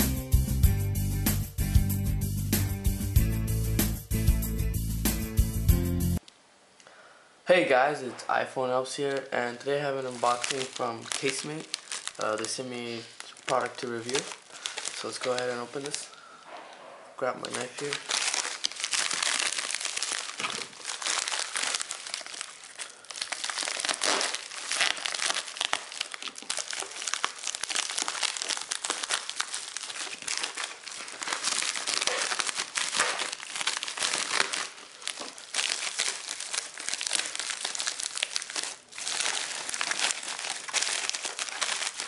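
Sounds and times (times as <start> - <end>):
plastic mailer crinkling: 9.0 - 16.3, 17.2 - 42.0.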